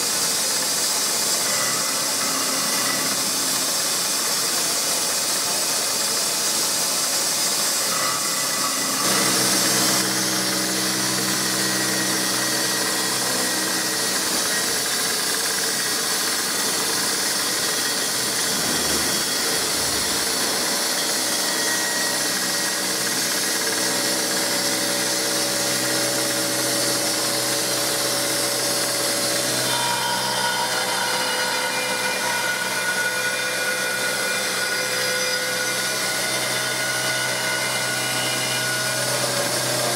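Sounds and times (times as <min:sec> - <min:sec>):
metal cutting hiss: 0:00.0 - 0:25.2
milling machine whining tones: 0:00.9 - 0:39.9.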